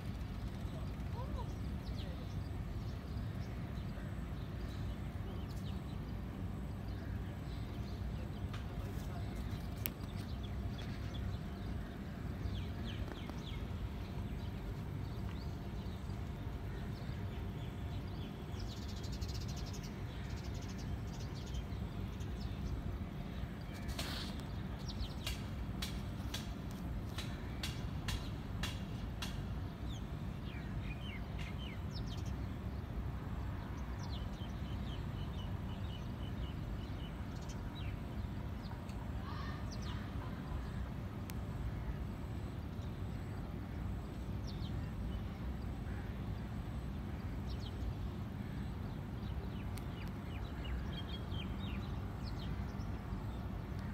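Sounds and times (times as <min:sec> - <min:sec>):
steady low rumble: 0:00.0 - 0:23.8.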